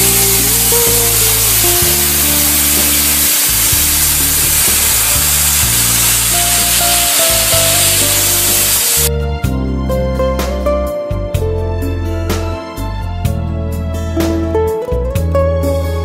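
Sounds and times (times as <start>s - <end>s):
plasma cutting torch hissing: 0.0s - 9.1s
background music with bass line: 0.0s - 16.0s.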